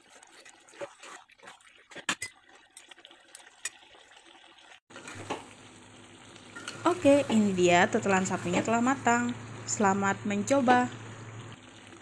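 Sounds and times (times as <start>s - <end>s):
stew bubbling: 0.0s - 7.3s.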